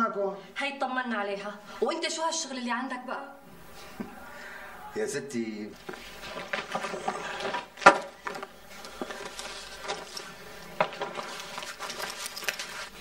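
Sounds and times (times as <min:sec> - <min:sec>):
household objects clinking: 0:06.2 - 0:13.0.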